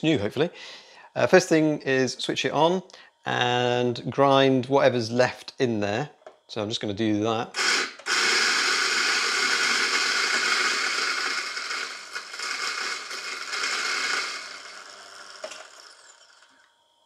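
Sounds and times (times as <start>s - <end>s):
coffee grinder grinding beans: 7.6s - 16.8s.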